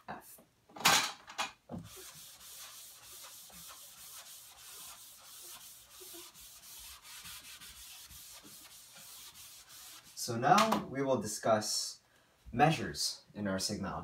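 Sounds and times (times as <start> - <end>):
chalkboard eraser rubbing: 1.8 - 10.3.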